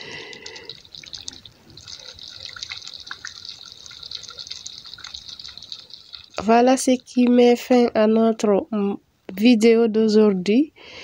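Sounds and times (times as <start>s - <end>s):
sauce bubbles popping: 0.0s - 7.4s
soft simmering hiss: 0.0s - 9.4s.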